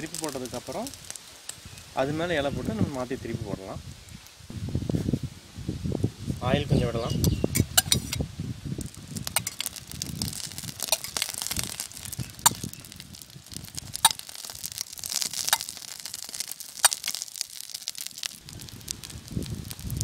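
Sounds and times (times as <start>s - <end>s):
batter sizzling on a griddle: 0.0s - 20.0s
sharp oil pops: 9.2s - 18.4s.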